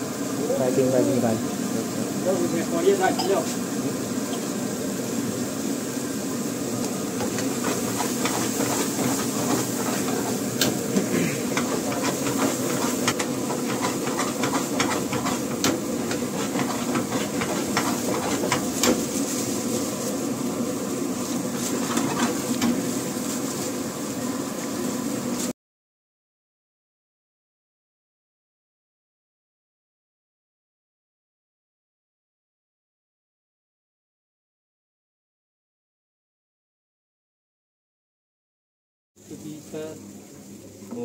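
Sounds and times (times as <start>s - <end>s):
gas burner hissing: 0.0s - 25.5s, 39.2s - 41.0s.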